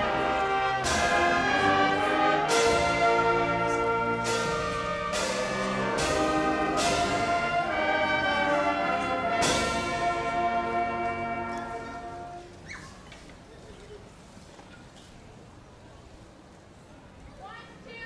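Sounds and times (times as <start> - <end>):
marching band brass chords: 0.0 - 12.6
cymbal and drum hits: 0.8 - 10.5.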